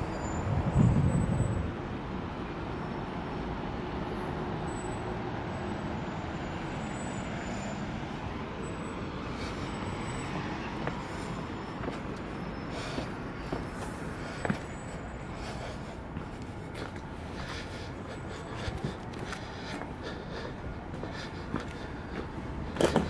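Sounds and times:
cars and buses passing: 0:00.0 - 0:23.0.

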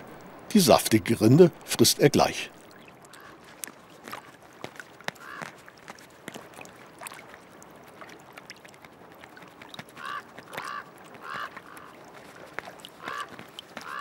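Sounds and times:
waterfowl calling: 0:05.2 - 0:05.5, 0:10.0 - 0:12.0, 0:12.9 - 0:14.0.

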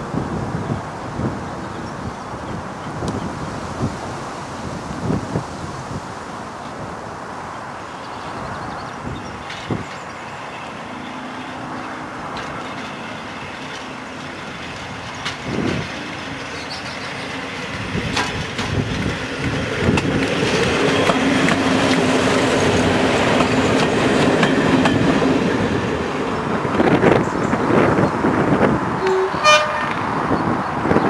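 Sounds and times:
diesel train engine drone: 0:08.9 - 0:31.0
wheels clicking over rail joints: 0:11.8 - 0:25.2.

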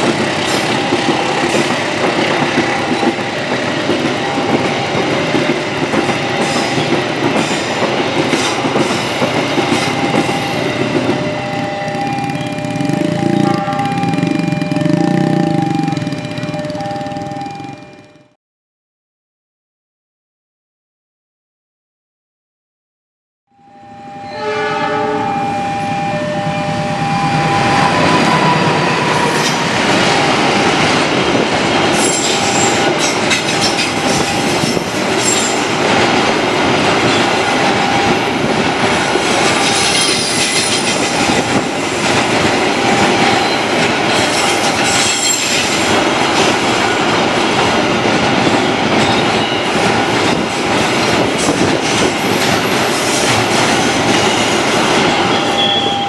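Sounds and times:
freight train wheels clattering: 0:00.0 - 0:17.6, 0:27.9 - 0:56.0
locomotive horn: 0:10.6 - 0:17.6, 0:23.5 - 0:29.8, 0:55.2 - 0:56.0.

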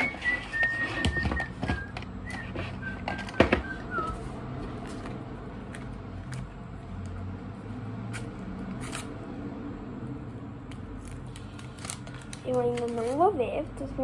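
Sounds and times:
person whistling: 0:00.0 - 0:04.4
foil crinkles and clicks: 0:11.0 - 0:13.4
foil packet tearing crackle: 0:11.0 - 0:13.4.

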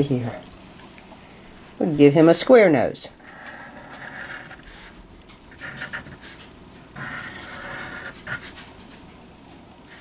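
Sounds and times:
marker drawing on paper: 0:03.3 - 0:05.0, 0:05.6 - 0:06.4, 0:07.0 - 0:08.6.

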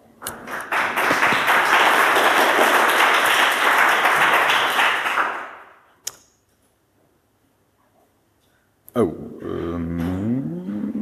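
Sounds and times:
audience applauding: 0:00.4 - 0:05.7
sharp click: 0:06.0 - 0:06.4.

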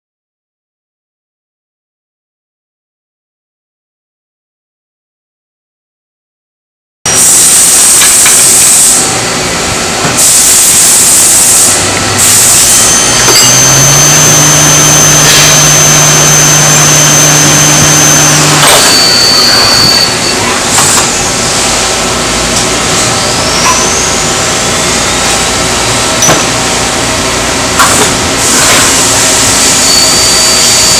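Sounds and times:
thin high whine: 0:07.1 - 0:09.3, 0:10.2 - 0:30.9
motor hum: 0:11.8 - 0:23.5.

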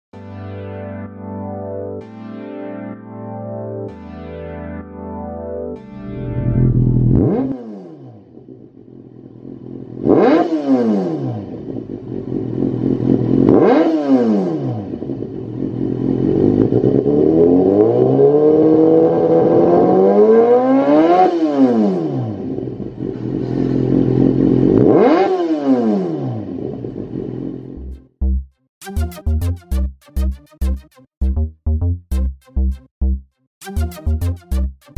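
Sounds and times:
motorcycle engine idling and revving: 0:06.1 - 0:28.2.

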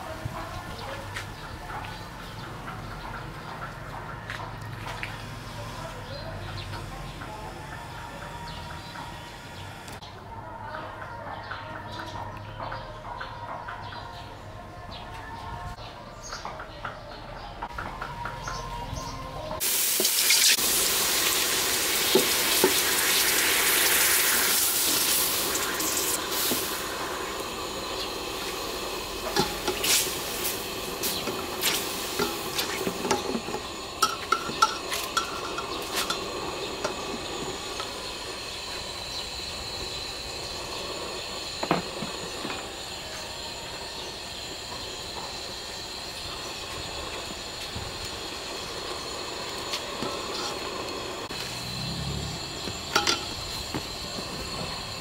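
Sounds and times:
milk sizzling in a pot: 0:19.6 - 0:55.0
metal ladle clinking on pot: 0:32.2 - 0:37.0, 0:53.0 - 0:53.3.

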